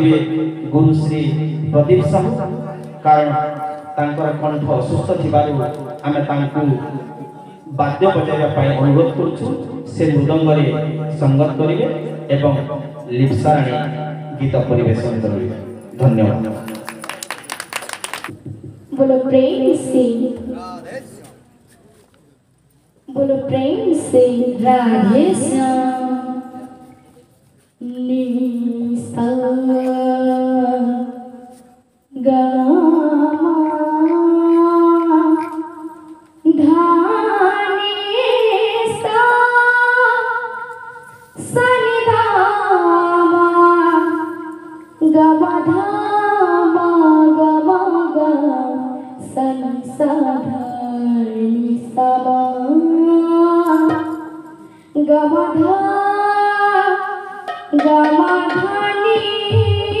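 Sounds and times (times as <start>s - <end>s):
girl singing into a microphone: 18.4s - 20.5s, 23.1s - 60.0s.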